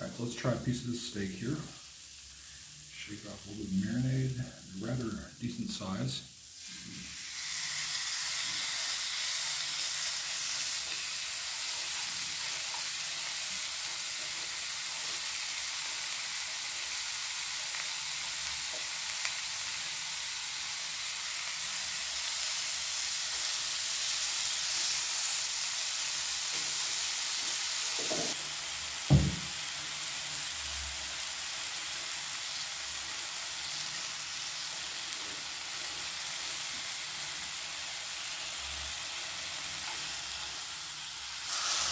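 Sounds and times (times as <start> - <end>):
meat and vegetables sizzling: 0.0 - 41.9
sharp knock: 29.1 - 29.5.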